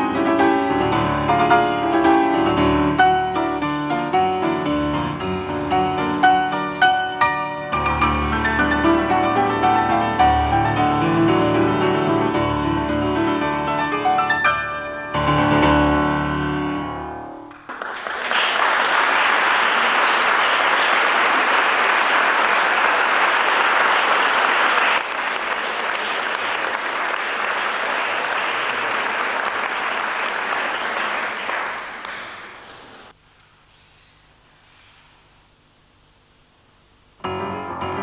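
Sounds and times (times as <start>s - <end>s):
audience applause: 17.6s - 33.1s.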